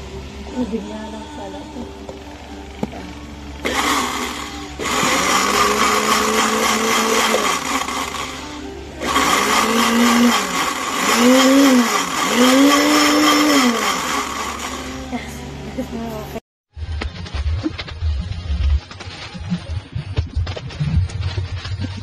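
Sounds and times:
blender motor running: 0:03.6 - 0:15.3.

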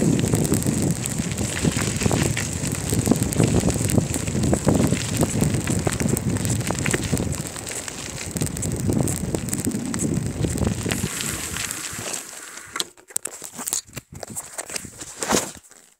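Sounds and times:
wind buffeting microphone: 0:00.0 - 0:12.1
bicycle tyre rumble and rattling: 0:00.0 - 0:15.9
crackles and clicks: 0:00.0 - 0:15.9.

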